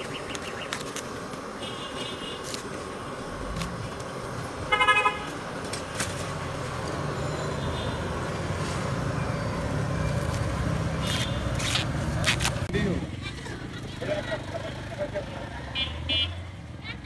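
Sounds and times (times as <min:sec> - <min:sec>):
street traffic rumble: 0:00.0 - 0:17.0
vehicle horn toot: 0:01.6 - 0:02.4, 0:04.7 - 0:05.3, 0:07.2 - 0:08.2, 0:15.8 - 0:16.4.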